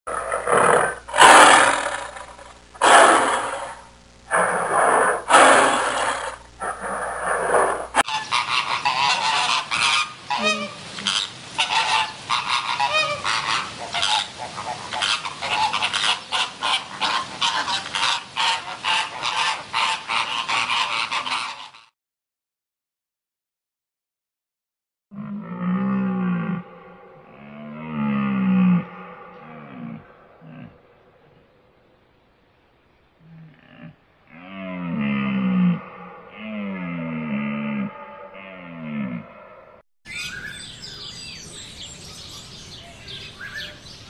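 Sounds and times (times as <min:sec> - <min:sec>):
tiger calling: 0:00.1 - 0:12.1, 0:25.2 - 0:31.9
flamingos honking: 0:00.1 - 0:21.9.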